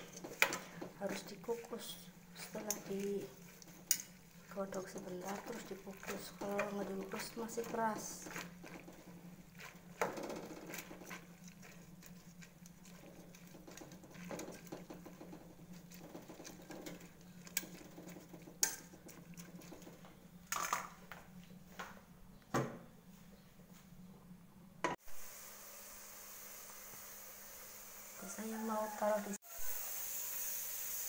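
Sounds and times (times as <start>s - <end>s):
water boiling in a pot: 0.0s - 20.9s, 25.1s - 31.0s
utensil clinking against pot: 2.4s - 8.9s.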